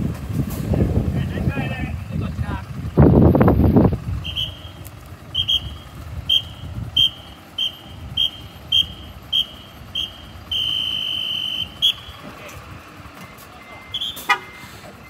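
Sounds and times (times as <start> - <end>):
diesel engine running low: 0.0 - 15.0
high-pitched whistle blasts: 4.2 - 12.2, 13.8 - 14.6.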